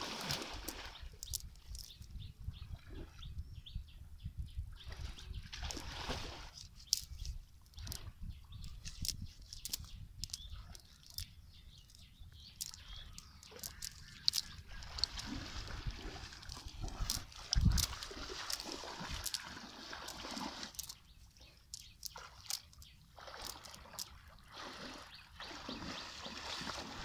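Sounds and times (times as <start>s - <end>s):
wet net rustling and clicking: 0.2s - 2.2s, 5.6s - 24.2s.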